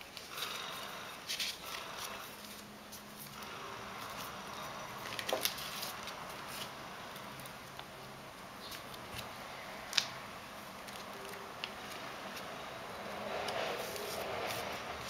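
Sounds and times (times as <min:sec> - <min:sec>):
paper rustling and crinkling: 0:01.3 - 0:10.1, 0:10.7 - 0:12.6, 0:13.2 - 0:15.0.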